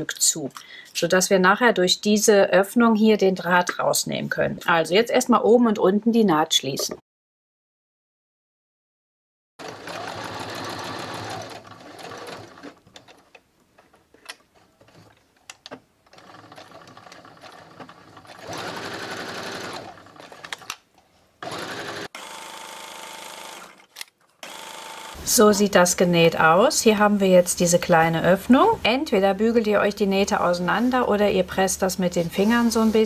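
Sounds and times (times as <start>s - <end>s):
electric sewing machine stitching: 9.6s - 12.8s, 16.1s - 20.7s, 21.4s - 25.3s.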